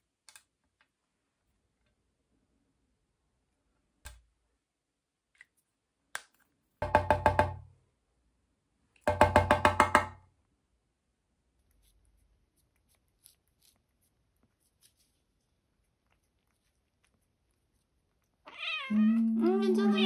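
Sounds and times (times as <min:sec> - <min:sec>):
hollow wood-block knocks: 0:06.8 - 0:07.7, 0:09.1 - 0:10.2.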